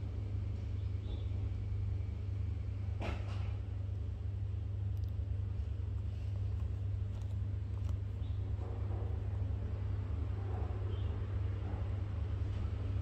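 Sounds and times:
steady low hum: 0:00.0 - 0:10.7
faint clicks: 0:04.9 - 0:05.2
soft rustling: 0:05.6 - 0:08.2.

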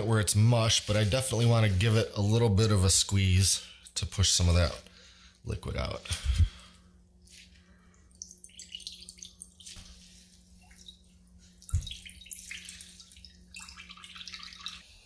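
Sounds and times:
liquid dripping into glass bowl: 0:08.1 - 0:09.8.

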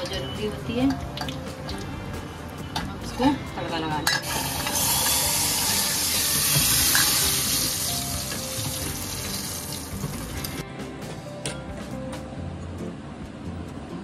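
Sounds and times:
hot oil sizzling: 0:04.0 - 0:10.6.

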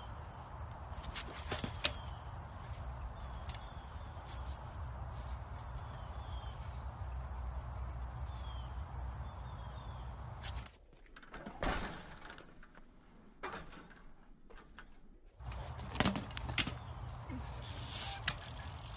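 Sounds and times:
bike clicks and knocks: 0:00.7 - 0:04.7, 0:10.4 - 0:18.9
low wind rumble: 0:02.0 - 0:10.4.

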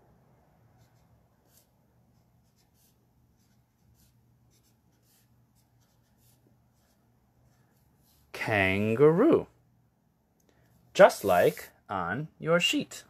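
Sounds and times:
faint handwriting scratching: 0:00.7 - 0:08.3.

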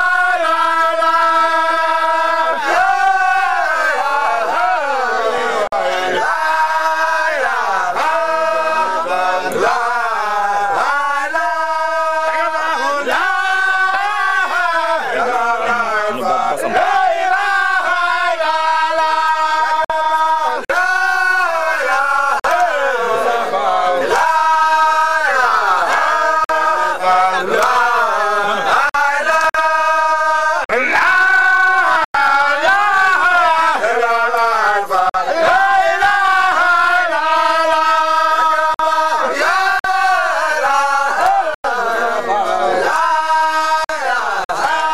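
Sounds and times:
men chanting in unison: 0:00.0 - 0:44.9.

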